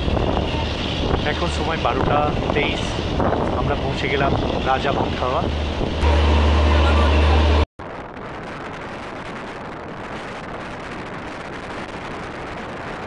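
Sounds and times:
running train rushing noise: 0:00.0 - 0:07.7
train low rumble: 0:00.0 - 0:09.1
wind on microphone: 0:00.0 - 0:13.0.

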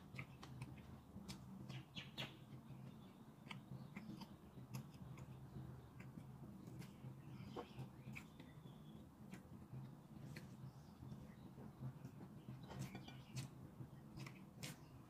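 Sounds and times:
chewing clicks and smacks: 0:00.1 - 0:01.9, 0:02.9 - 0:07.0, 0:07.6 - 0:08.6.

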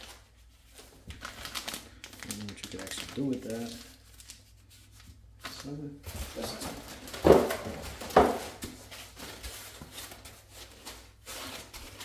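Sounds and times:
plastic bag crinkling: 0:00.0 - 0:04.5.

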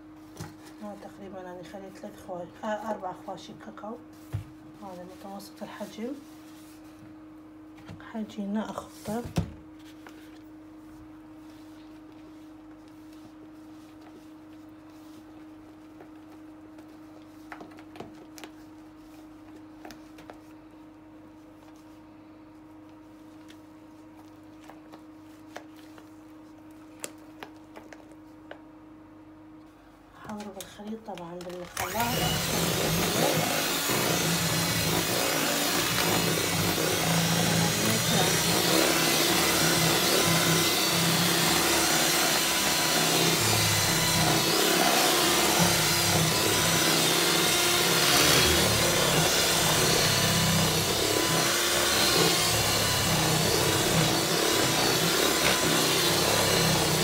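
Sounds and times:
electric mixer beating batter: 0:31.8 - 0:57.0.

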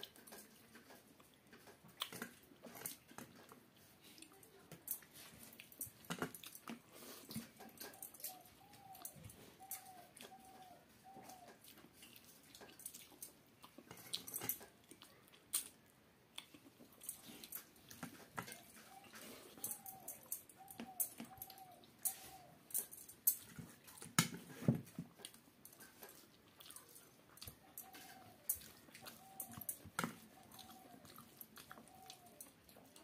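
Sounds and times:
wet chewing: 0:00.0 - 0:33.0
animal calls: 0:07.5 - 0:11.7, 0:18.4 - 0:22.9, 0:26.1 - 0:33.0.

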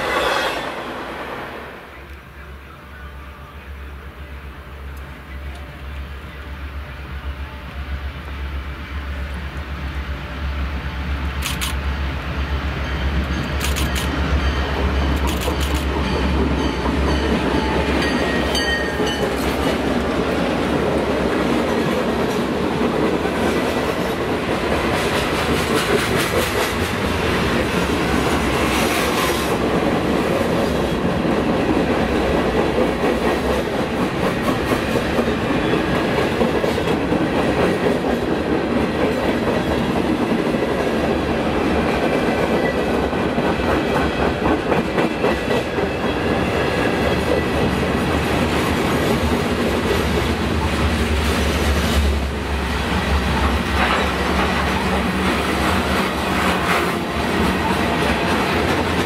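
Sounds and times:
freight train wheels rumbling: 0:00.0 - 0:59.0
clickety-clack over rail joints: 0:14.8 - 0:27.1, 0:28.2 - 0:52.0, 0:52.9 - 0:59.0.

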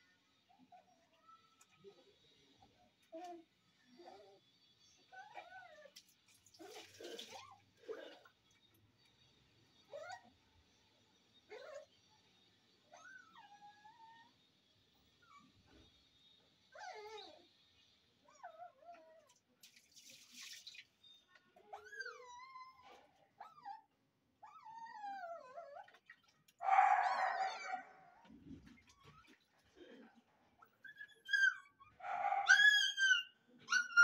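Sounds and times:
puppy whimpering and whining: 0:03.1 - 0:04.4, 0:05.0 - 0:06.0, 0:09.9 - 0:10.4, 0:11.5 - 0:11.9, 0:12.9 - 0:14.4, 0:16.7 - 0:17.5, 0:18.3 - 0:19.3, 0:21.6 - 0:26.0, 0:30.7 - 0:34.0.

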